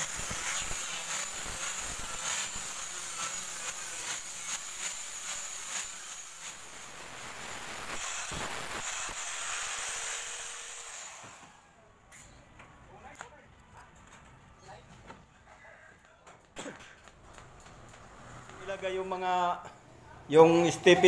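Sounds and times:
welding arc hissing and crackling: 0:00.0 - 0:11.4.

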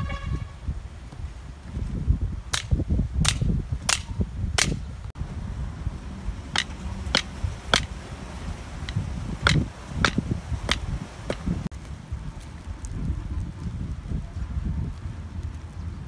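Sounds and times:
wood striking wooden stake: 0:02.5 - 0:04.9, 0:06.6 - 0:07.9, 0:08.8 - 0:11.6.

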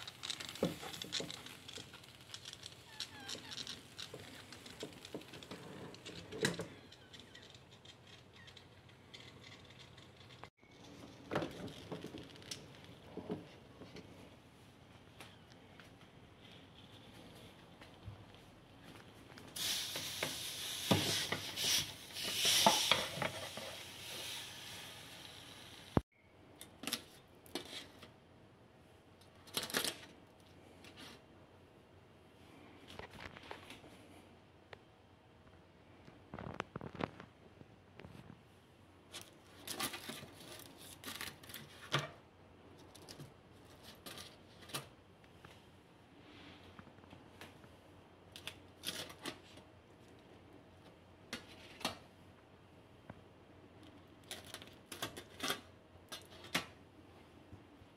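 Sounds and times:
peppers sizzling on hot plate: 0:19.6 - 0:26.0.

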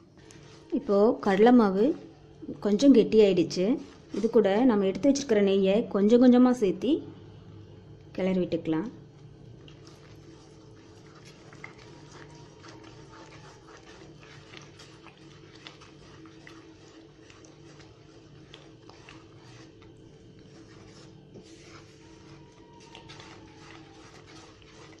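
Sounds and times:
spatula stirring sticky batter: 0:00.0 - 0:06.7, 0:08.2 - 0:25.0.

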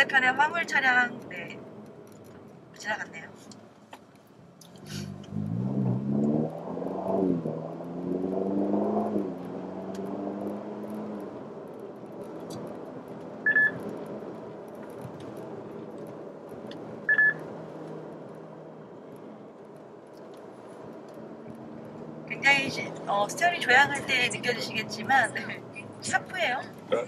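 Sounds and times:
car engine hum from cabin: 0:00.0 - 0:27.0.

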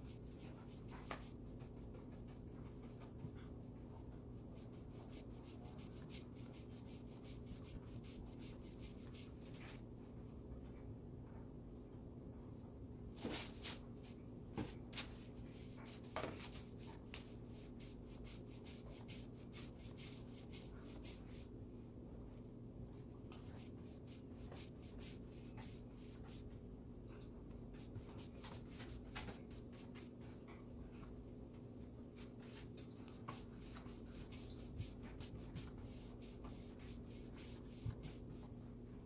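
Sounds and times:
paintbrush brushing on wood: 0:00.0 - 0:09.9, 0:13.2 - 0:14.2, 0:14.8 - 0:21.5, 0:23.3 - 0:26.6, 0:27.7 - 0:30.2, 0:32.1 - 0:39.0.

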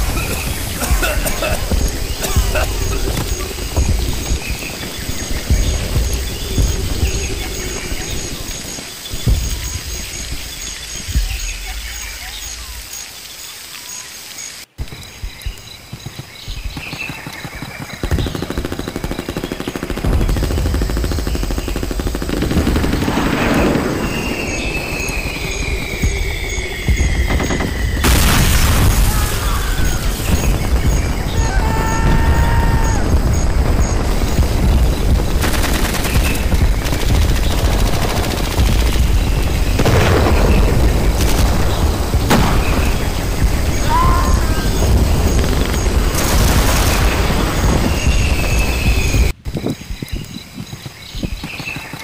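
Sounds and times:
steady low rumble: 0:00.0 - 0:12.9
machine-gun fire: 0:17.0 - 0:24.8, 0:26.9 - 0:43.8, 0:44.6 - 0:49.3.

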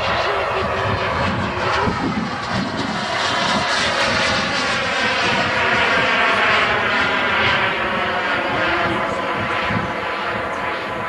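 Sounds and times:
model jet turbine whining: 0:00.0 - 0:11.0.

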